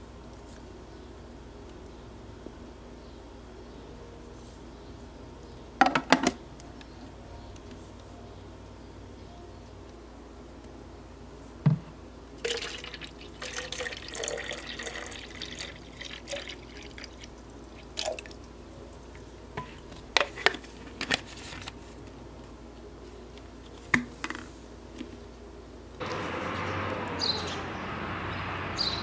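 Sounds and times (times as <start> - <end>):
water pouring into plastic bottle: 12.4 - 17.3, 17.9 - 18.4.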